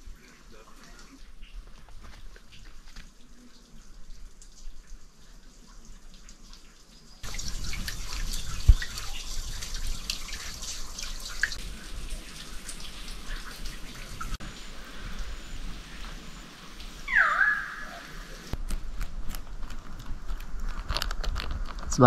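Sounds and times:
water dripping into rock pool: 0:00.0 - 0:15.3
splash of running water: 0:00.0 - 0:18.6.

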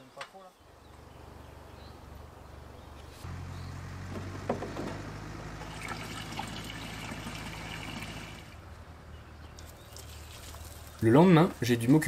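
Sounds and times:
knock: 0:04.1 - 0:05.0
water filling plastic watering can: 0:05.6 - 0:08.6, 0:09.6 - 0:11.6.

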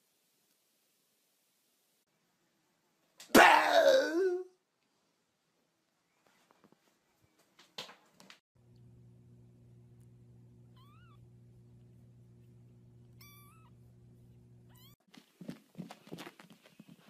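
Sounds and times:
low hum: 0:08.6 - 0:15.0.

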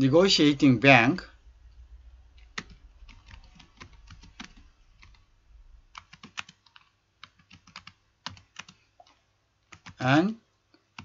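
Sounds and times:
computer keyboard typing: 0:02.4 - 0:05.2, 0:05.9 - 0:10.0.

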